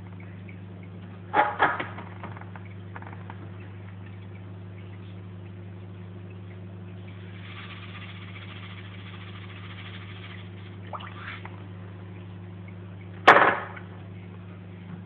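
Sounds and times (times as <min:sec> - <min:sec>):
aquarium equipment humming: 0:00.0 - 0:15.0
water and air bubbles hissing: 0:07.1 - 0:11.6.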